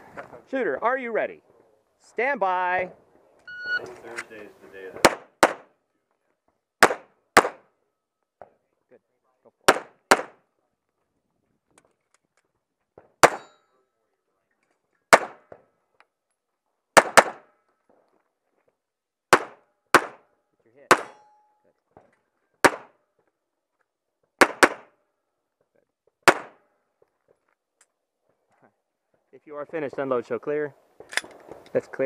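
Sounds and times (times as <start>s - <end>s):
pistol shots: 5.0s - 5.7s, 6.8s - 7.6s, 9.7s - 10.4s, 13.2s - 13.5s, 15.1s - 15.4s, 17.0s - 17.4s, 19.3s - 20.2s, 20.9s - 21.2s, 22.6s - 22.9s, 24.4s - 24.9s, 26.2s - 26.6s.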